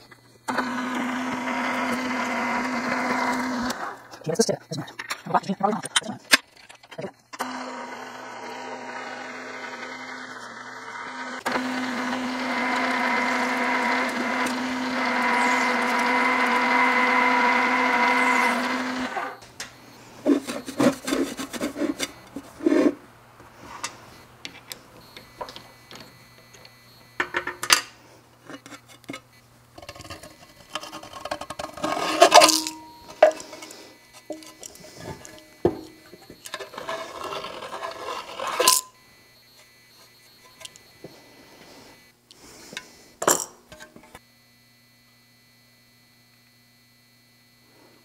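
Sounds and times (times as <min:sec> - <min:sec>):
drill press whining through metal: 0:00.0 - 0:04.2, 0:06.6 - 0:23.0, 0:23.8 - 0:43.0
metal scrape: 0:20.2 - 0:23.0, 0:29.8 - 0:38.9
metal part clinking: 0:26.6 - 0:33.7.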